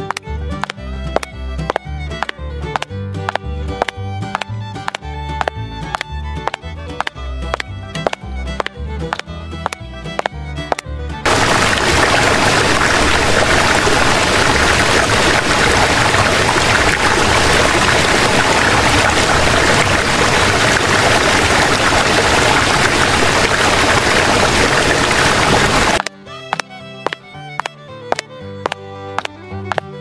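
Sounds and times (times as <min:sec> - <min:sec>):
water pouring from watering can: 0:11.2 - 0:26.1.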